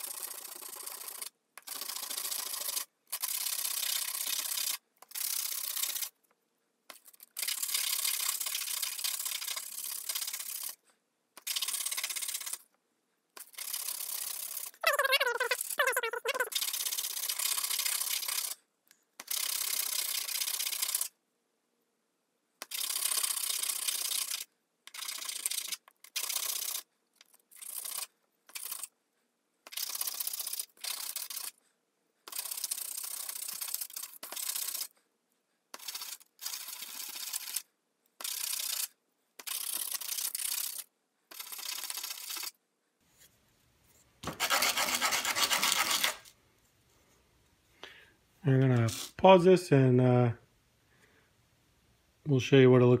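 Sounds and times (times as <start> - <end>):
sandpaper rasping on wood: 44.3 - 46.3.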